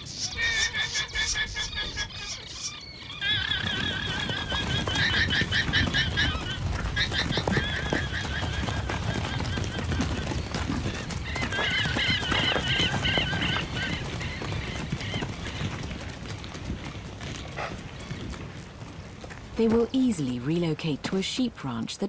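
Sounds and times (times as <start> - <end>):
shrill whinny-like alarm calls: 0.0 - 8.6
rumble of hoofbeats: 2.9 - 22.0.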